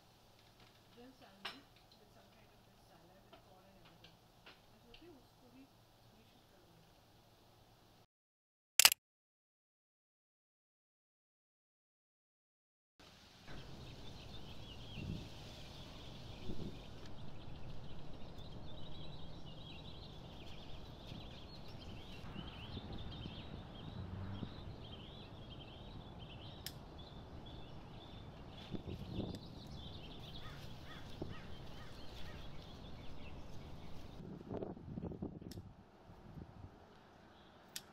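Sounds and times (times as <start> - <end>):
birds chirping: 13.5 - 34.6.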